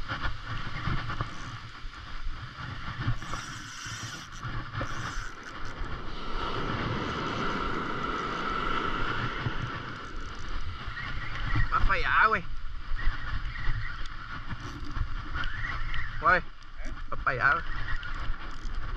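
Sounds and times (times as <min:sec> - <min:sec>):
surf washing onto beach: 0:00.0 - 0:18.9
wind buffeting microphone: 0:00.0 - 0:18.9
fishing reel cranking: 0:01.1 - 0:01.7, 0:02.7 - 0:06.1, 0:07.0 - 0:07.6, 0:09.7 - 0:10.6, 0:14.6 - 0:15.0, 0:18.4 - 0:18.8.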